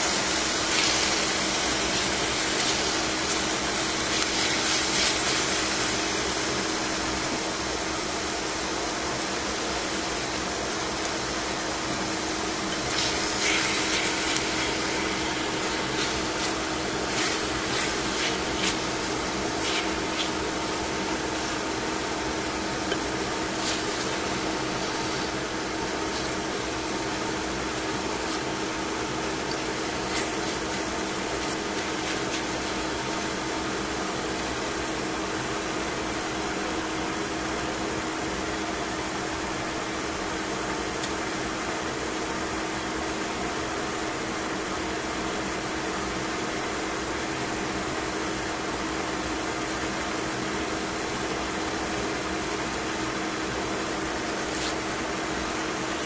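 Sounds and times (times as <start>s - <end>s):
chicken sizzling in a pan: 0.0s - 8.2s, 9.9s - 35.2s
constant hum: 0.0s - 37.1s.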